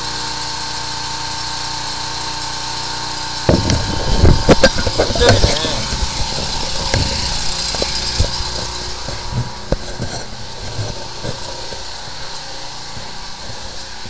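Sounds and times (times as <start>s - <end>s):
engine idling: 0.0s - 14.0s
short knocks: 3.5s - 11.9s.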